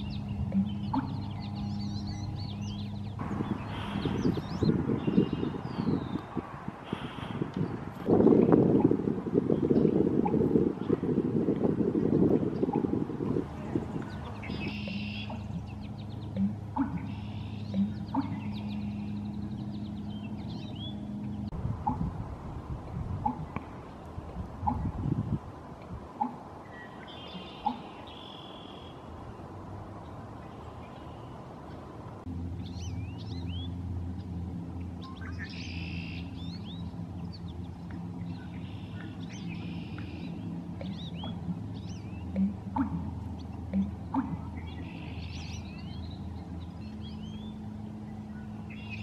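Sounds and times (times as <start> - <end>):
buzzy bird trills: 0.0 - 6.1, 14.1 - 22.0
small birds chirping: 0.0 - 8.6, 12.0 - 22.1, 26.2 - 31.9, 32.6 - 49.0
steady low hum: 0.0 - 49.0.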